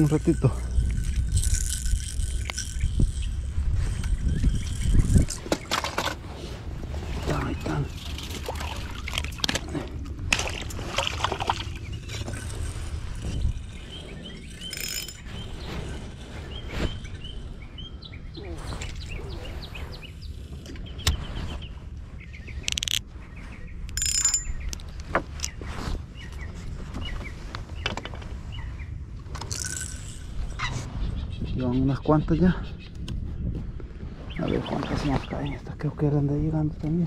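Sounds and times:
wind rumbling on microphone: 0.0 - 37.0.

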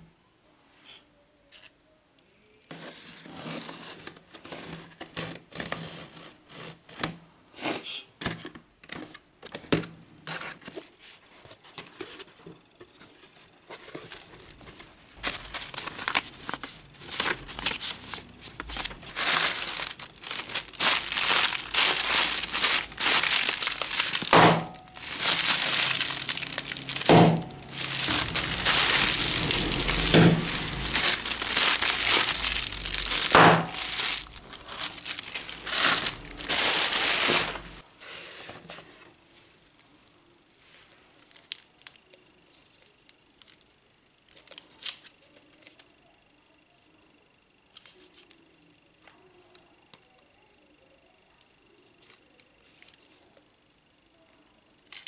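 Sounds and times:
plastic packing pillows crinkling: 13.8 - 37.8.

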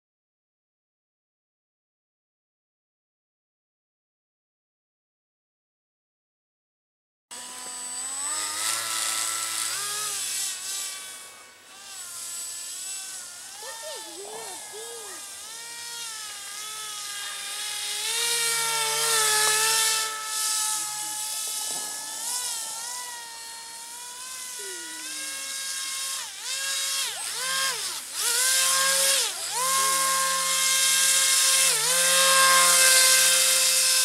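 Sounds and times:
electric motor and propeller whining: 7.3 - 34.0.

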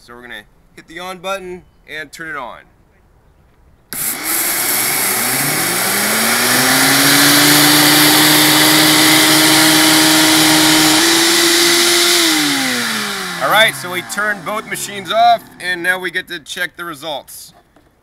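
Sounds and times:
blenders grinding seeds: 4.0 - 15.6.

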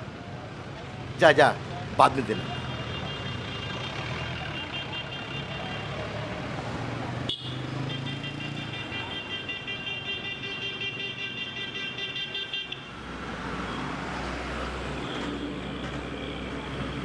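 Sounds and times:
street traffic noise: 0.0 - 17.0
vehicle horn pulsing: 2.6 - 6.0, 7.3 - 12.8.

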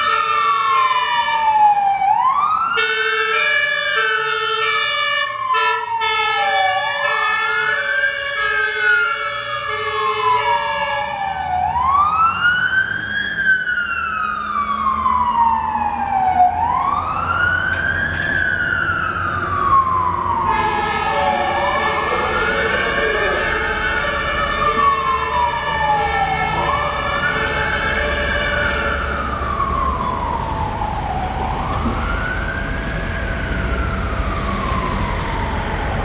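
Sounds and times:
fire engine siren wailing: 0.0 - 36.0
two-tone siren: 0.0 - 36.0
truck engine rumbling: 7.3 - 36.0.

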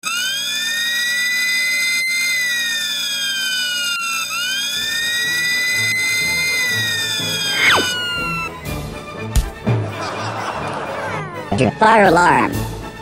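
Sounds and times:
fire alarm siren wailing: 0.0 - 8.5.

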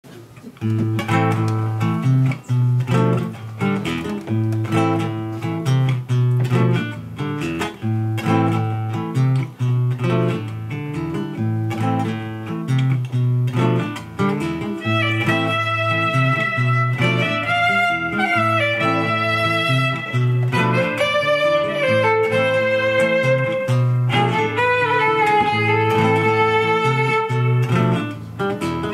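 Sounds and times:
classical guitar plucking: 0.1 - 28.9
violin bowed notes: 14.8 - 28.1.

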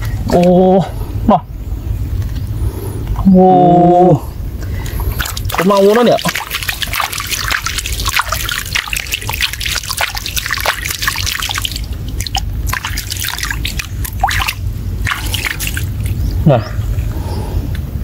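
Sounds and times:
low rumble: 0.0 - 18.0
water trickling and dripping: 4.6 - 16.6
small splashes and plops: 4.7 - 16.2.

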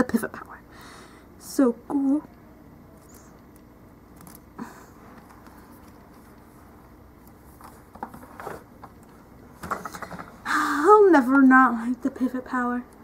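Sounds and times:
handling rustles and knocks: 5.0 - 10.4.

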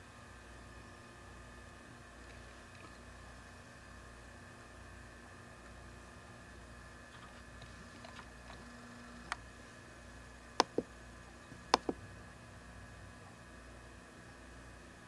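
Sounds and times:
faint steady hum: 0.0 - 15.0
sharp clicks: 10.6 - 10.9, 11.5 - 12.0.

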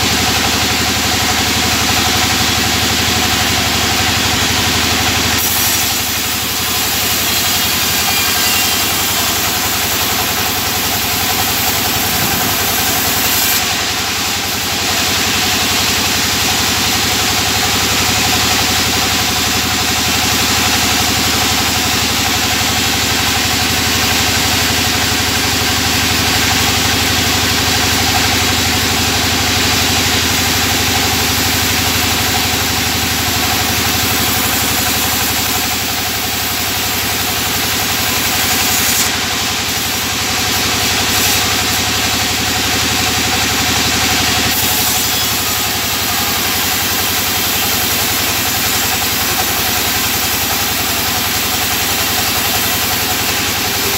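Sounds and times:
motor hum: 0.0 - 14.7
band saw cutting wood: 0.0 - 53.9.

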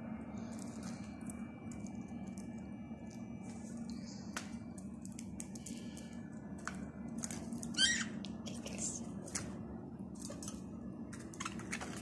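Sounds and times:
budgie cracking seeds: 4.2 - 8.4.

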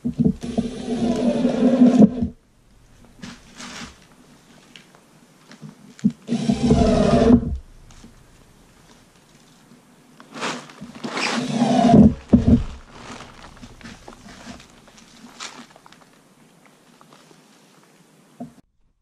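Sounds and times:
cordless drill whining: 0.4 - 2.3, 6.3 - 7.5, 11.2 - 12.6
heavy knocks on wooden frame: 12.0 - 12.8.

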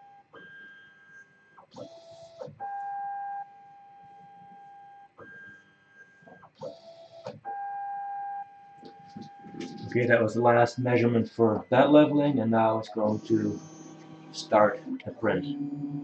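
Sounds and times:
stepper motors whining: 11.4 - 16.0.

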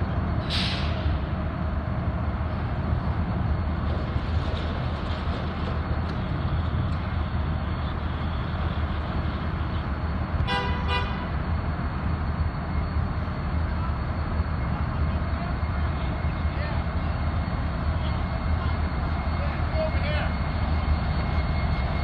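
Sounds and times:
diesel locomotive engine rumbling: 0.0 - 22.0
train horn blasts: 10.4 - 11.3.

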